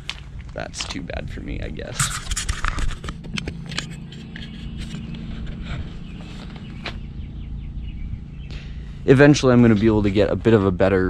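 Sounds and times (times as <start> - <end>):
steady low rumble: 0.0 - 11.0
footsteps crunching on gravel: 1.9 - 7.3.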